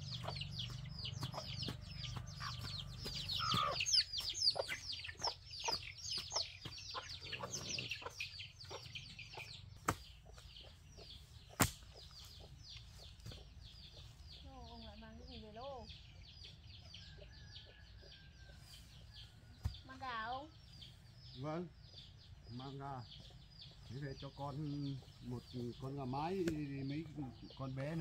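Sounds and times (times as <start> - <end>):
chicks peeping: 0.0 - 28.0.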